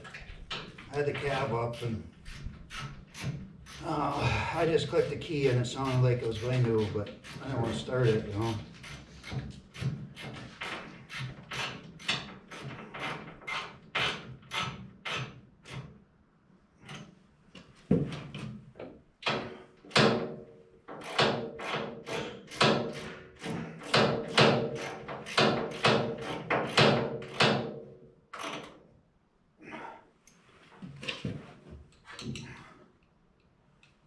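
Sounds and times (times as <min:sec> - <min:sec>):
sharp knocks: 0:19.2 - 0:27.9.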